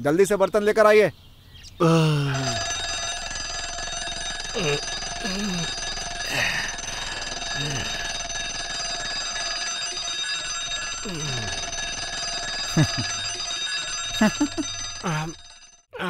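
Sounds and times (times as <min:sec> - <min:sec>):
man groaning: 0:01.8 - 0:02.8, 0:04.6 - 0:06.8, 0:11.0 - 0:11.7
alarm clock bells ringing: 0:02.3 - 0:15.9.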